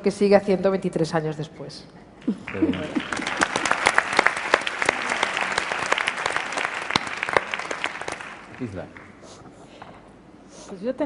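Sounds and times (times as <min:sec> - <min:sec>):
large audience applauding: 0:02.5 - 0:09.2.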